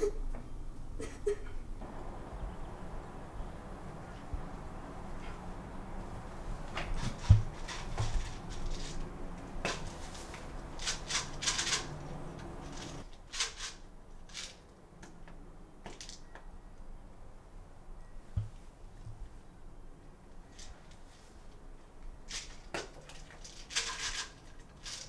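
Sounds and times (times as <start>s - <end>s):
low hum: 1.2s - 7.6s
clicks and rustles of handling: 6.6s - 16.5s, 22.3s - 25.0s.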